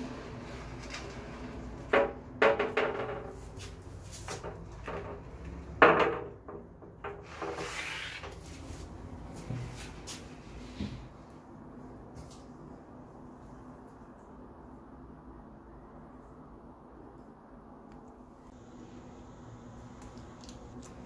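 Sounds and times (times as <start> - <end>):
glass door rubbing: 0.0 - 8.6.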